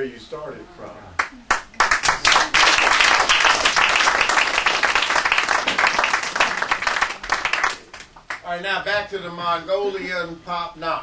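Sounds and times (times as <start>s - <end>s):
audience applauding: 1.2s - 8.4s.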